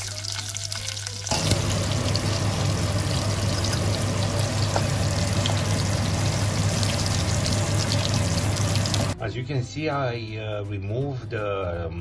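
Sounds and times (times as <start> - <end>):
meat sizzling in hot lard: 0.0 - 9.2.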